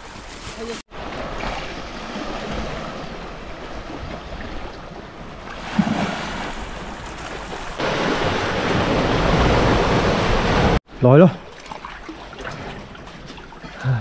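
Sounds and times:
waves on rocky shore: 0.9s - 10.8s.

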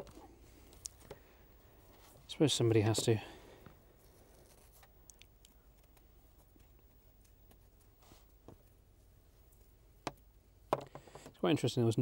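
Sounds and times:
person speaking: 2.2s - 3.4s.

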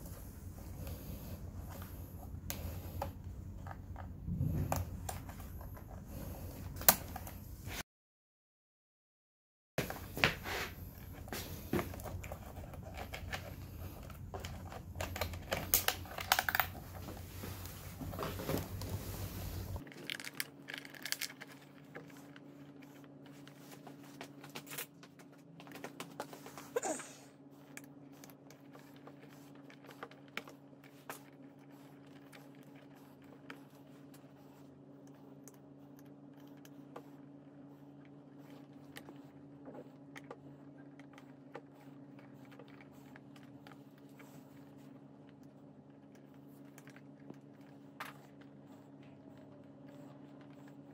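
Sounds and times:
low rumble: 0.0s - 6.7s
faint steady hum: 0.0s - 7.8s, 9.8s - 50.9s
plastic clicks and rattles: 19.8s - 21.7s.

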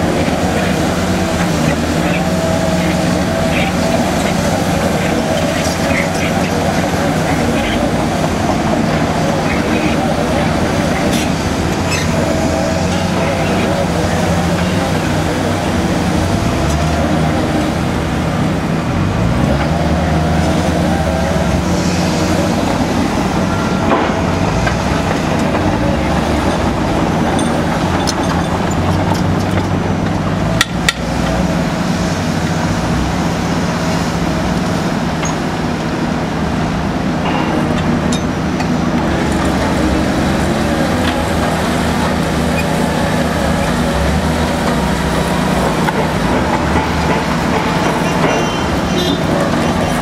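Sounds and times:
drill rig engine running: 33.2s - 50.0s.

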